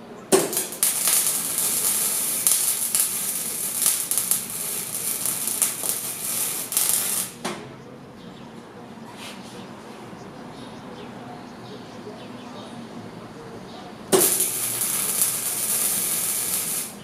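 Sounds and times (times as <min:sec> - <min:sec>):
welding arc crackling and sizzling: 0:00.3 - 0:07.5, 0:14.1 - 0:17.0
sharp crack of arc striking: 0:00.3 - 0:07.6, 0:14.1 - 0:17.0.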